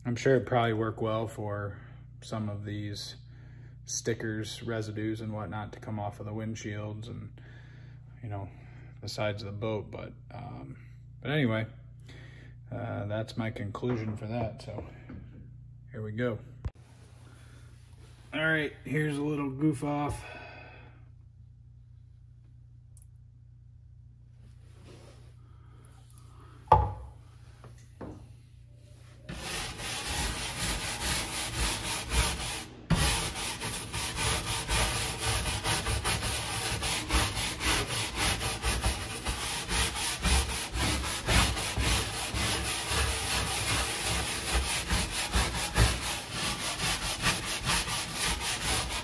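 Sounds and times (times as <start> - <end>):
scrub brush scrubbing deck: 29.2 - 49.0.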